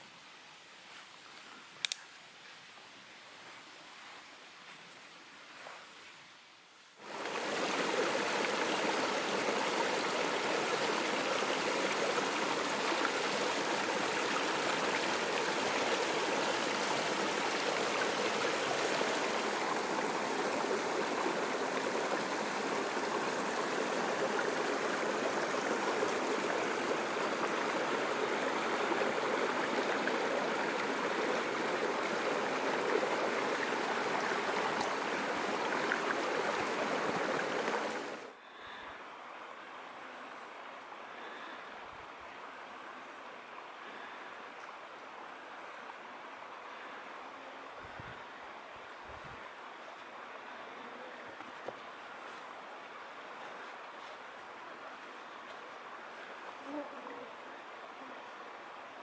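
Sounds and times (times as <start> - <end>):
stream flowing over stones: 7.0 - 38.4, 39.0 - 59.0.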